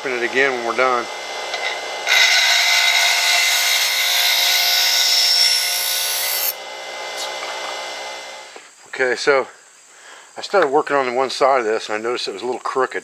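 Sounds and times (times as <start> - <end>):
steel grinding on wheel: 0.0 - 7.8
bench grinder motor humming: 0.0 - 8.6.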